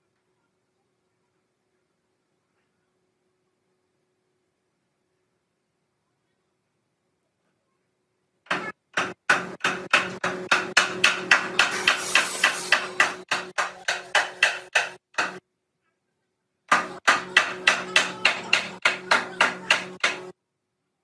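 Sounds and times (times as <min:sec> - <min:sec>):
rapid hammer blows: 0:08.5 - 0:15.4, 0:16.7 - 0:20.3.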